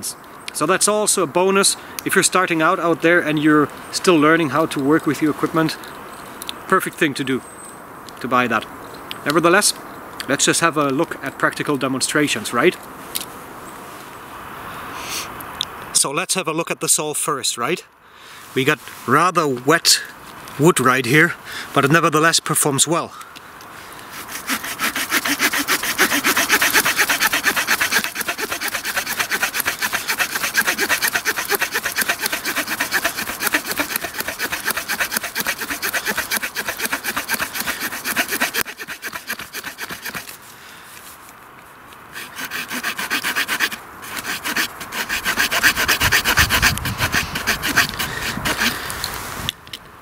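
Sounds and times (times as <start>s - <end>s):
small saw cutting wet branch: 24.1s - 40.4s, 42.2s - 49.0s.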